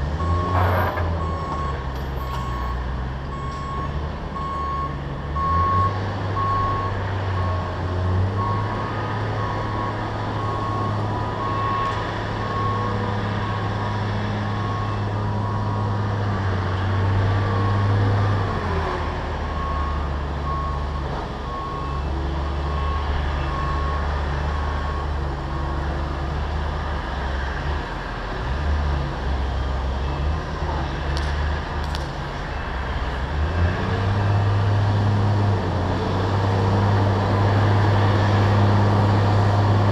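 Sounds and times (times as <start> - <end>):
heavy diesel engine running: 0.0 - 28.3
reversing alarm beeping: 0.2 - 7.7.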